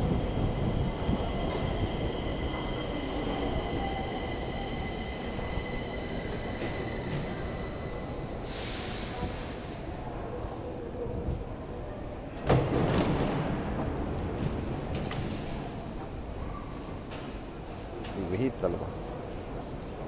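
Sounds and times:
subway train rumbling: 0:00.0 - 0:20.0
burst of hiss: 0:08.4 - 0:09.9.

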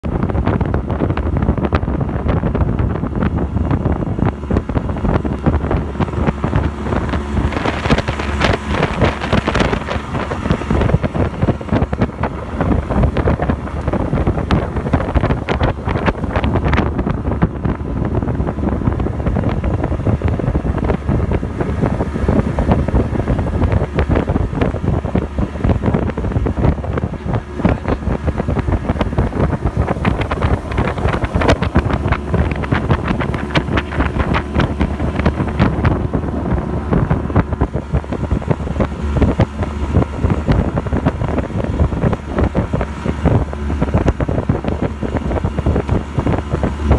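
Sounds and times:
boat motor hum: 0:00.0 - 0:46.9
wind buffeting microphone: 0:00.0 - 0:46.9.

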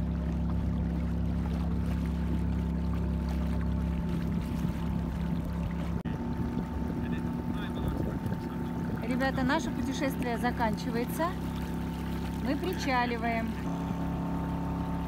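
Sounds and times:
boat engine rumbling: 0:00.0 - 0:15.0
water against hull: 0:00.0 - 0:15.0.

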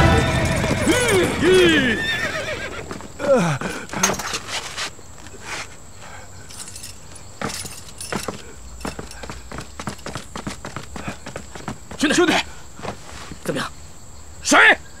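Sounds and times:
short falling cry: 0:00.0 - 0:04.0
horse hooves on dirt: 0:00.0 - 0:05.0, 0:06.5 - 0:13.6
footsteps on dirt road: 0:06.5 - 0:13.6.

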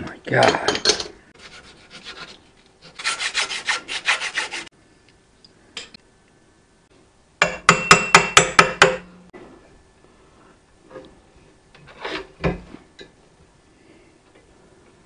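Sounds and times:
rasping strokes on metal: 0:01.4 - 0:04.7
sharp metallic knocks: 0:07.4 - 0:09.1.

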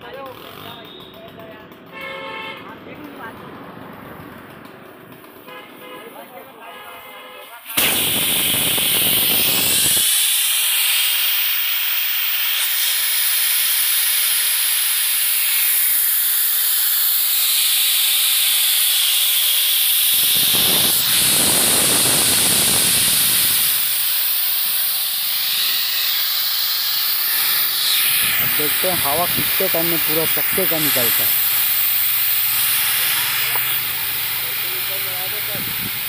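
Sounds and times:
air hissing out of tyre: 0:07.6 - 0:36.0.

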